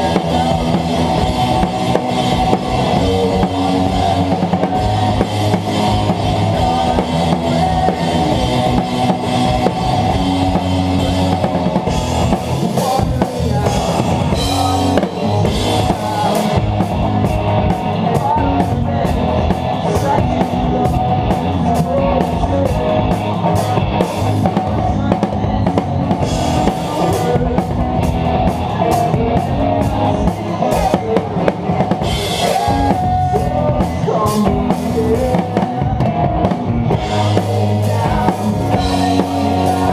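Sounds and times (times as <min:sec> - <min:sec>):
drum kit: 0:00.0 - 0:39.9
rock band playing live: 0:00.0 - 0:39.9.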